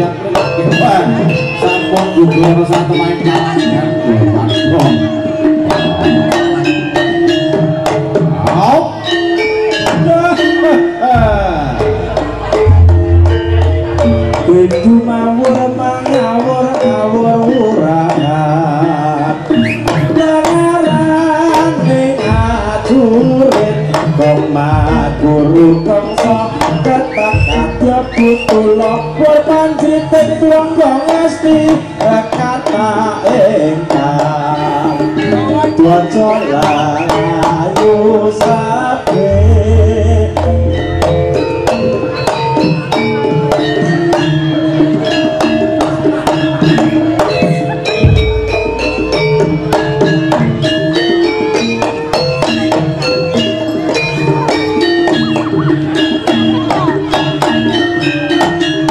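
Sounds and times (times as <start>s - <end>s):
hand drums rhythm: 0.0s - 58.9s.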